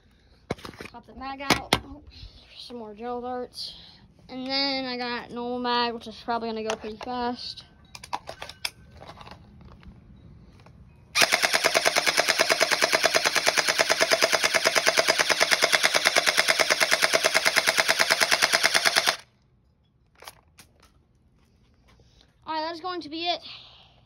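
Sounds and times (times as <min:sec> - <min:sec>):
gel blaster firing full-auto: 0:11.2 - 0:19.2.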